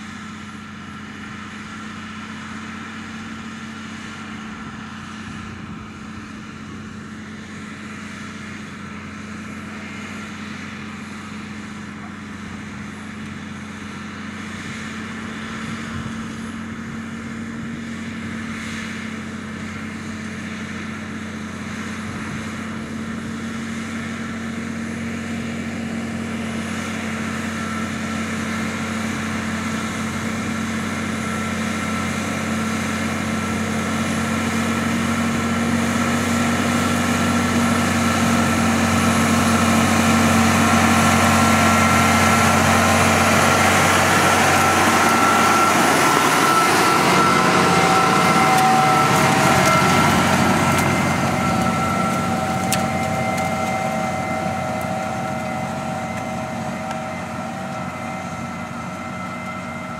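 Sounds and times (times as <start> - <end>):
tractor diesel engine running: 0.0 - 59.9
high whine: 26.9 - 59.9.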